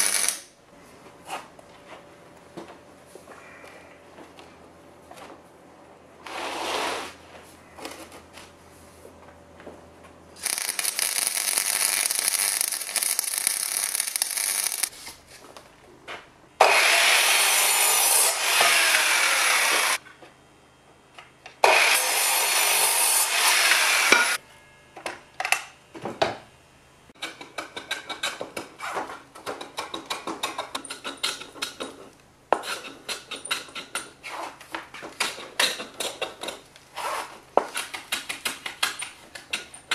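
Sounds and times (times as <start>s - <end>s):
mitre saw cutting timber: 16.6s - 20.0s, 21.6s - 24.4s.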